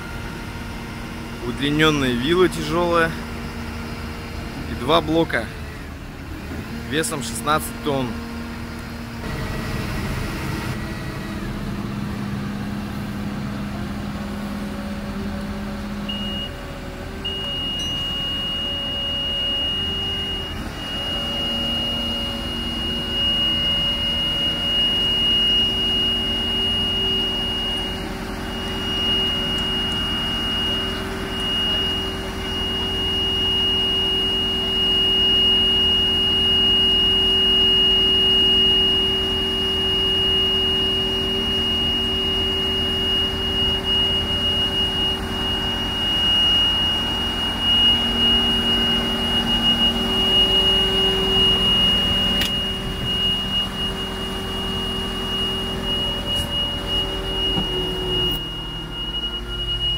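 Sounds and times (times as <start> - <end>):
diesel engine running under load: 0.0 - 59.9
hydraulics lifting: 0.0 - 59.9
high-pitched beep tone: 16.1 - 16.6, 17.2 - 59.9.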